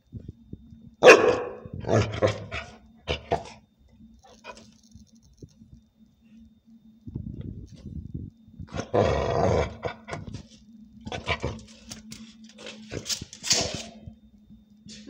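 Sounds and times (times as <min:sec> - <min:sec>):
dog growling: 0:01.4 - 0:03.6, 0:08.7 - 0:12.0.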